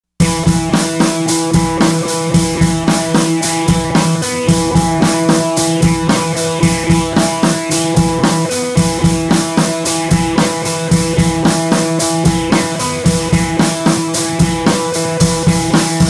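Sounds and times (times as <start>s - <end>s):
drum-kit beat: 0.2s - 16.0s
guitar: 0.2s - 16.0s.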